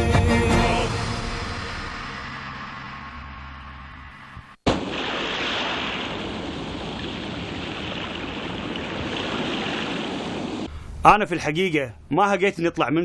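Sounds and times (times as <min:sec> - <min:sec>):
waves washing onto beach: 0:04.8 - 0:10.7.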